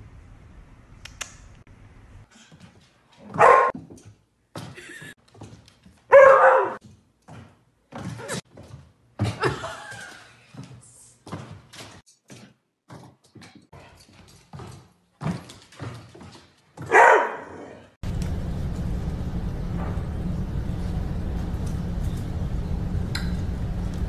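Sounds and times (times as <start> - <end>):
dog barking: 3.2 - 3.7, 6.1 - 6.8, 16.8 - 17.8.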